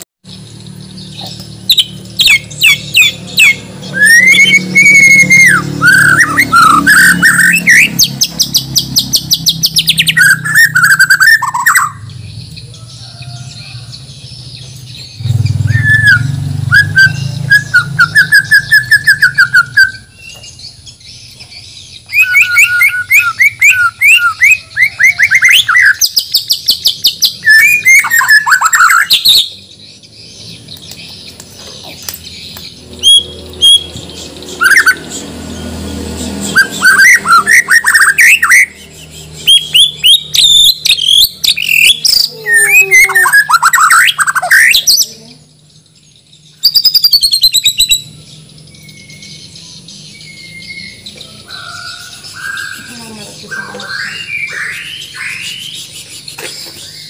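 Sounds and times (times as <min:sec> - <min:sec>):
songbird singing varied phrases: 0:00.3 - 0:57.0.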